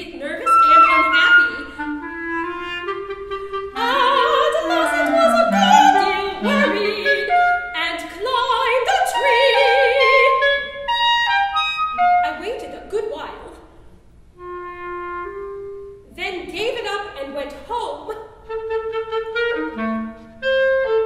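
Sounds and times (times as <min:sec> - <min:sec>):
clarinet: 0:00.2 - 0:12.5, 0:14.4 - 0:16.1, 0:18.3 - 0:21.0
woman singing operatically: 0:03.7 - 0:10.4.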